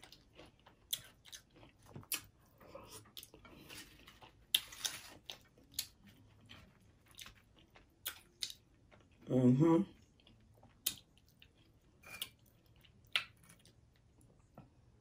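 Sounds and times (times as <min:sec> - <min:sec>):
crisp crunching and chewing: 0:00.0 - 0:09.2.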